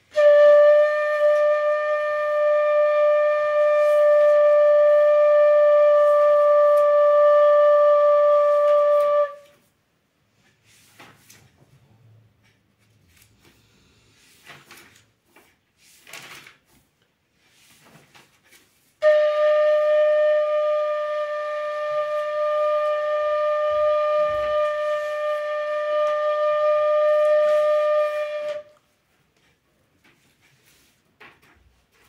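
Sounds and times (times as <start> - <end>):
bamboo flute long held note: 0.0 - 9.7, 19.0 - 28.8.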